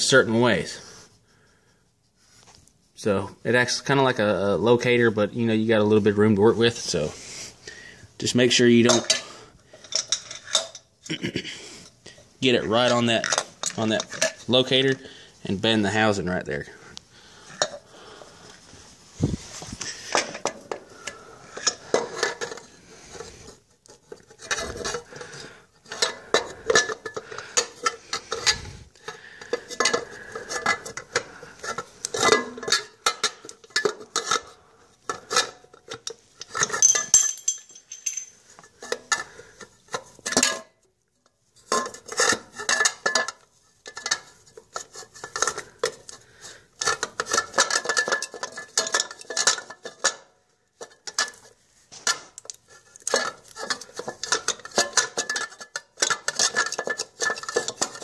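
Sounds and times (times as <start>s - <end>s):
metal clinks and clatter: 35.1s - 39.3s, 46.8s - 58.0s.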